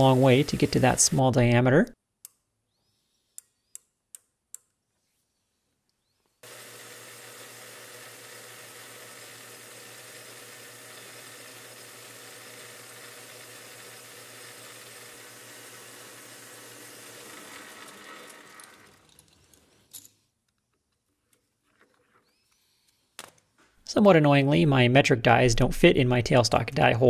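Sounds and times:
metal lathe humming: 0.0 - 1.6, 6.4 - 19.9.

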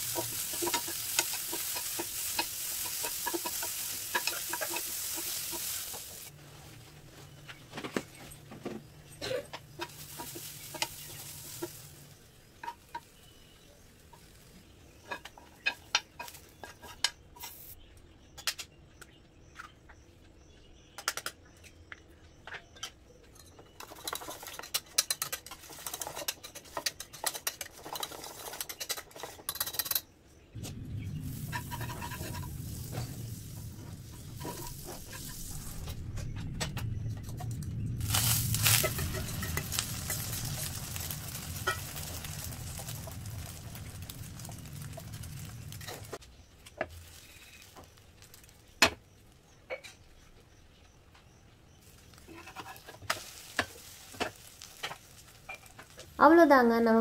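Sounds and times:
spatula tapping frying pan: 0.0 - 6.3
egg mix sizzling in hot pan: 0.0 - 7.4, 8.1 - 17.7, 23.8 - 29.9, 30.7 - 36.0, 37.0 - 49.5, 51.7 - 56.4
steady low noise: 30.5 - 46.6.

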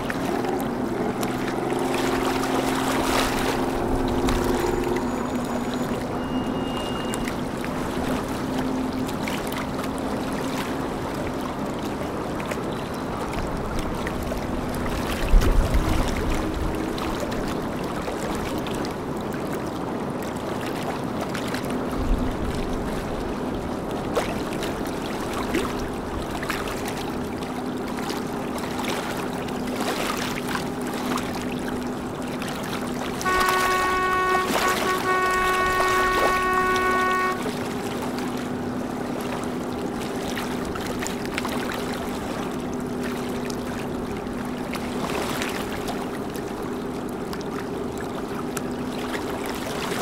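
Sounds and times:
boat engines humming: 0.0 - 50.0
water wash from wakes: 0.0 - 50.0.

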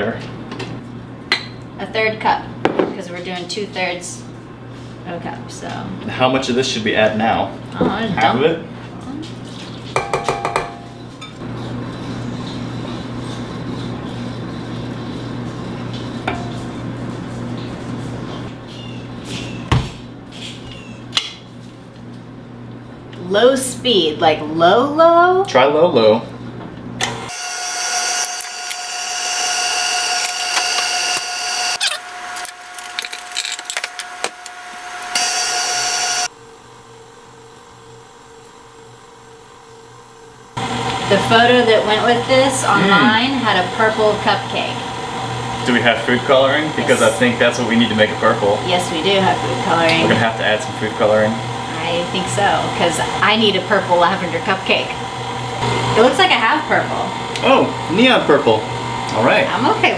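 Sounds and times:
spoon tapping a bowl: 10.0 - 11.0
stand mixer humming: 27.0 - 32.9, 34.1 - 36.4, 40.2 - 59.9.

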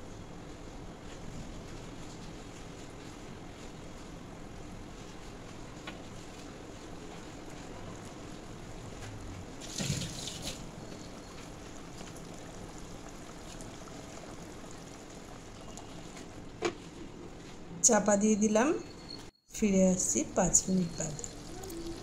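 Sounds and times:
gravy bubbling in a pan: 6.8 - 16.5, 20.6 - 22.0.

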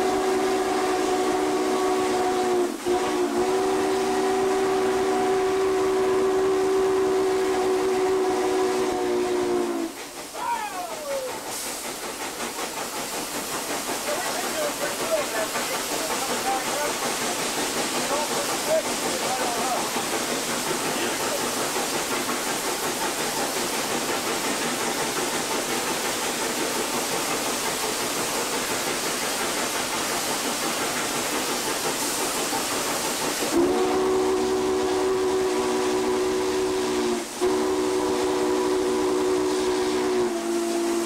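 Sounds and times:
steam whistle chord: 0.0 - 9.9, 33.6 - 41.0
steam locomotive rushing: 0.0 - 41.0.

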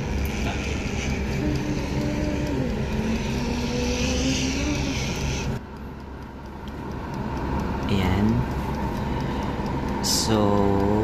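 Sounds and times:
wavering low tone: 0.0 - 5.6
air fryer fan whooshing hum: 0.0 - 11.0.

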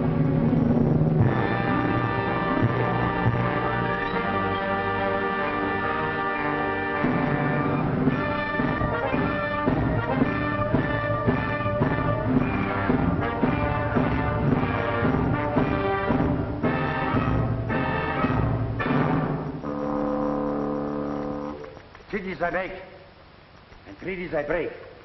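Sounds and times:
orchestral music with brass: 0.0 - 19.5.

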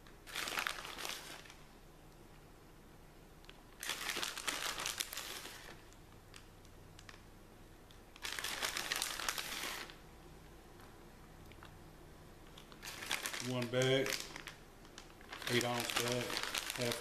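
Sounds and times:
plastic bag crinkling: 0.2 - 1.6, 3.8 - 7.2, 8.1 - 10.0, 12.5 - 17.0.

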